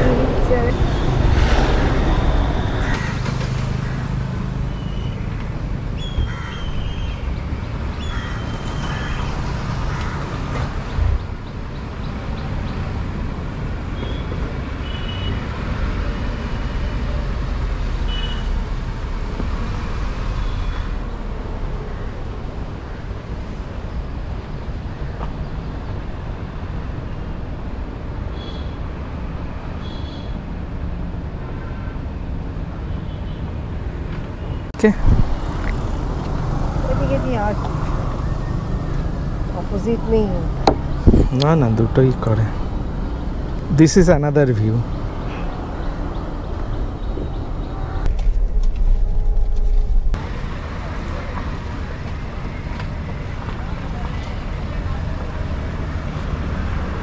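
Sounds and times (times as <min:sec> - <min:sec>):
low vehicle rumble: 0:00.0 - 0:06.6, 0:34.7 - 0:57.0.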